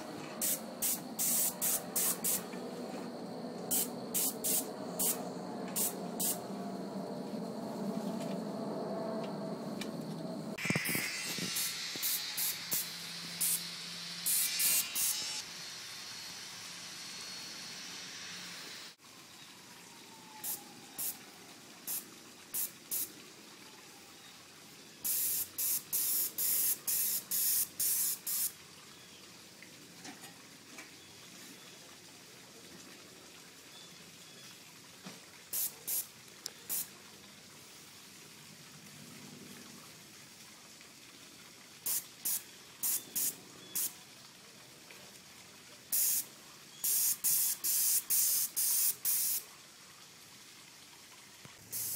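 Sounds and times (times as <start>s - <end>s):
spray gun hissing: 0.0s - 2.5s, 3.7s - 6.4s, 10.6s - 19.0s, 25.0s - 28.5s, 41.9s - 43.9s, 45.9s - 46.2s, 46.8s - 49.4s, 51.7s - 51.9s.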